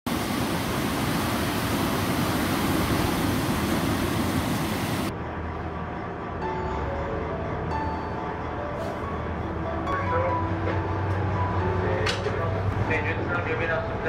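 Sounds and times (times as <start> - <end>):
background music: 5.1 - 14.0.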